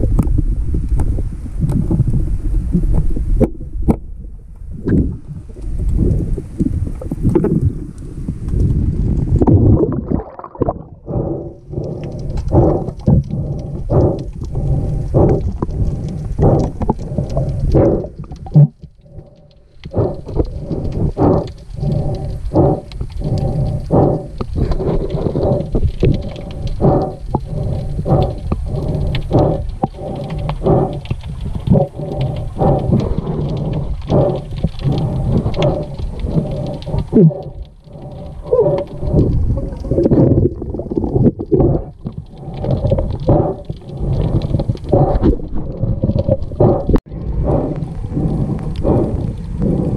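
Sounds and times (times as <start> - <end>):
rhythmic underwater whooshing pulses: 9.4 - 49.9.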